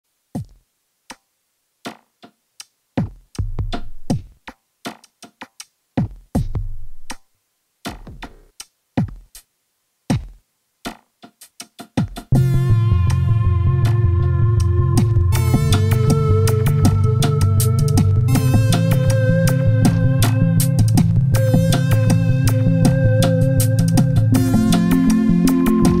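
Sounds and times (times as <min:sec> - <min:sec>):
drum machine kicks: 0:00.4 - 0:00.6, 0:03.0 - 0:07.2, 0:07.8 - 0:09.4, 0:10.1 - 0:12.6, 0:14.9 - 0:26.0
low bass note: 0:12.4 - 0:23.2.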